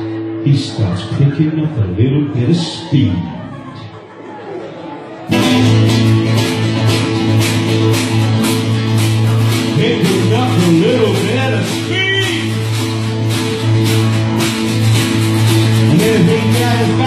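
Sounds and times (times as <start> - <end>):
live band with amplified guitars: 0.0 - 17.0
bending melody line: 5.3 - 17.0.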